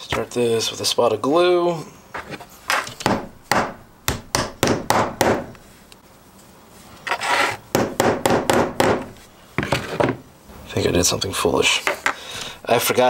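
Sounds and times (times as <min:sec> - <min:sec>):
hammer tapping: 0:03.0 - 0:05.6, 0:07.7 - 0:09.2.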